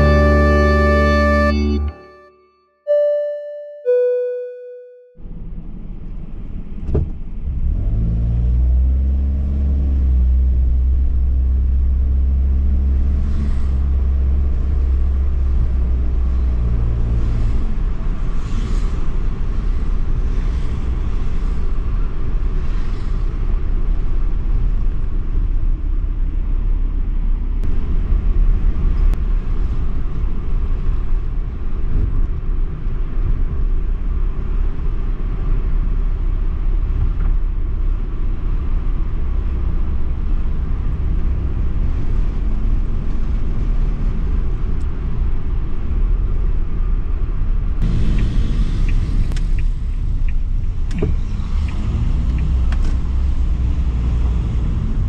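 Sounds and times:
car engine accelerating: 0:00.0 - 0:02.0, 0:05.2 - 0:26.5, 0:47.8 - 0:55.0
road noise: 0:00.0 - 0:02.2, 0:05.2 - 0:55.0
musical jingle: 0:00.0 - 0:05.1.

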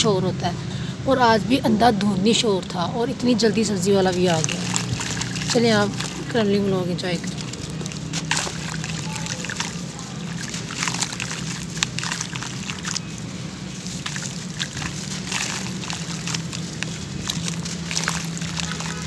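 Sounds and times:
crumbs pattering into water: 0:03.8 - 0:19.0.

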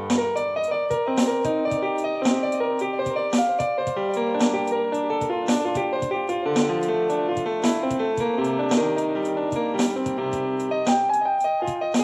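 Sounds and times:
piano chords and melody: 0:00.0 - 0:12.0
steady beat with light ticks: 0:00.0 - 0:12.0.

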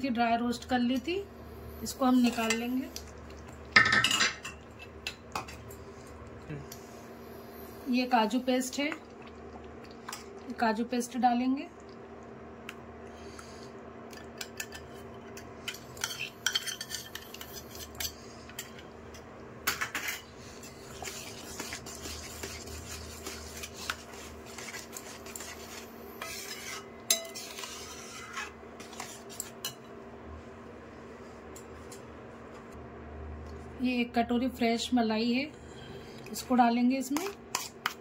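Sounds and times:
steady low hum: 0:00.0 - 0:38.0
spoon clinking and scraping steel: 0:15.7 - 0:18.7, 0:24.6 - 0:29.8.

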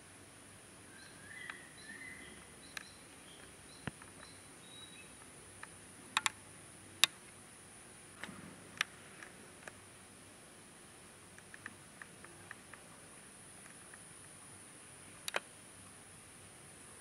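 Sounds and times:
steady high-pitched hiss: 0:00.0 - 0:17.0
birds chirping: 0:00.8 - 0:05.3
sharp clicks: 0:02.7 - 0:04.4, 0:05.2 - 0:06.4, 0:11.3 - 0:12.9, 0:15.2 - 0:15.5.

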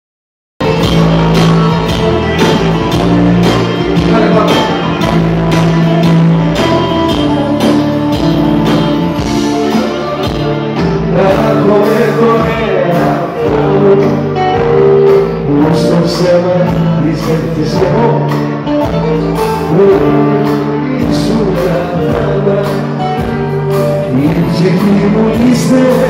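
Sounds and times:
bouzouki: 0:00.6 - 0:13.6
electric guitar: 0:00.6 - 0:26.0
live band playing pop: 0:00.6 - 0:26.0.

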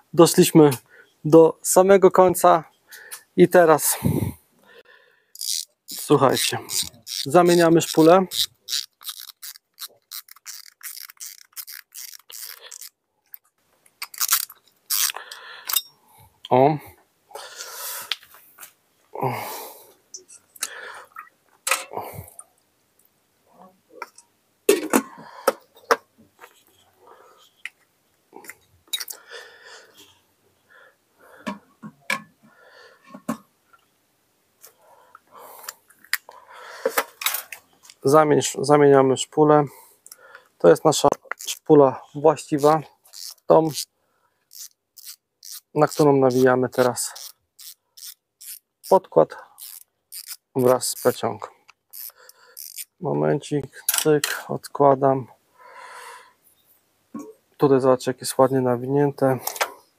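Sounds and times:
fishing reel clicking: 0:05.4 - 0:12.9, 0:14.1 - 0:15.8, 0:43.1 - 0:43.9, 0:44.5 - 0:46.0, 0:47.2 - 0:48.6, 0:49.6 - 0:51.2, 0:51.9 - 0:52.9.

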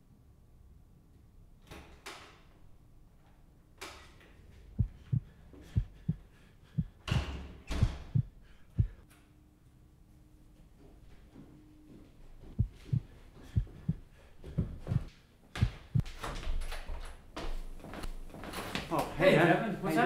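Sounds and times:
heartbeat thuds: 0:04.8 - 0:09.0, 0:12.4 - 0:16.2.

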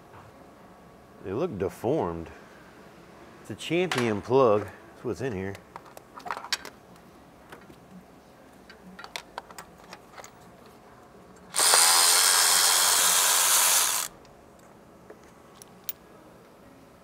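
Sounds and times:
power tool running: 0:11.5 - 0:14.1.

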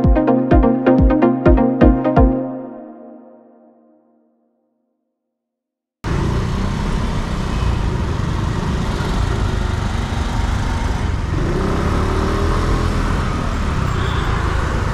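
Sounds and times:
city traffic: 0:06.0 - 0:14.9.

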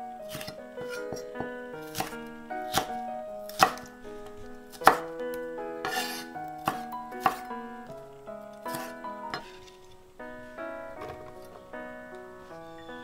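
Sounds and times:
knife chopping on wooden board: 0:00.3 - 0:01.2, 0:01.8 - 0:03.9, 0:04.8 - 0:05.0, 0:05.8 - 0:07.4.

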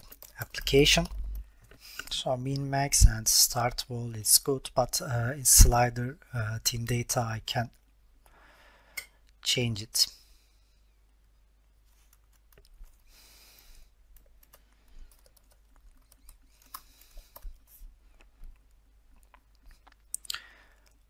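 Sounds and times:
computer keyboard typing: 0:00.0 - 0:01.8, 0:14.1 - 0:19.3.

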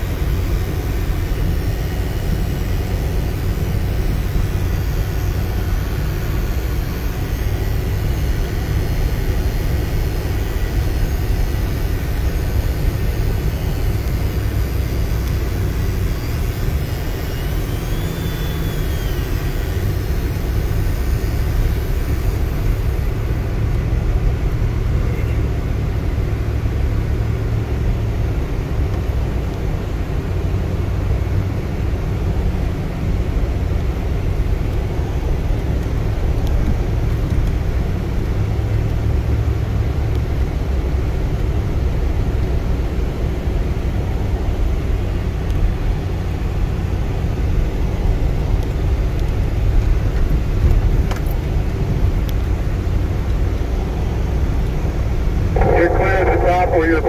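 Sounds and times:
engine and road rumble: 0:00.0 - 0:57.0.

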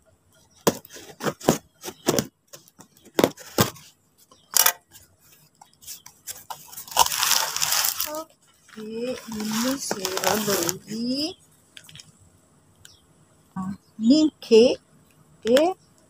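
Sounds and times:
cardboard flaps rustling: 0:00.6 - 0:03.9, 0:08.8 - 0:11.1.

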